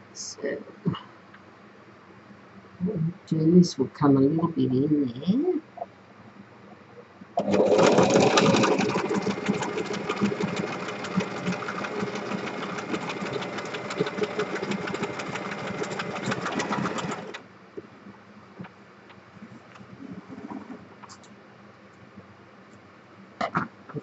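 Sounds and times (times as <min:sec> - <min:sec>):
sewing machine stitching: 0:07.4 - 0:17.4.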